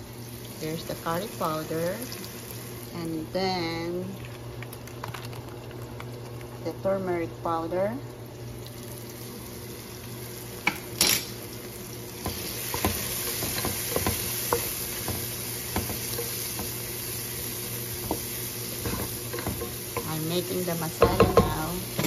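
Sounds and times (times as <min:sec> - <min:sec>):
vegetables sizzling in oil: 0:00.0 - 0:04.8, 0:05.6 - 0:22.0.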